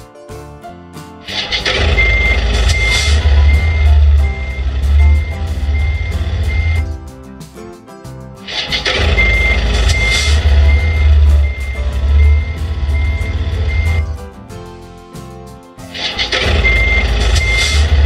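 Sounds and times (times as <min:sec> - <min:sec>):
music-like tones: 0:01.2 - 0:18.0
truck reversing alarm beeping: 0:01.3 - 0:07.0, 0:08.5 - 0:14.2, 0:16.0 - 0:18.0
low engine rumble: 0:01.3 - 0:07.1, 0:08.5 - 0:14.4.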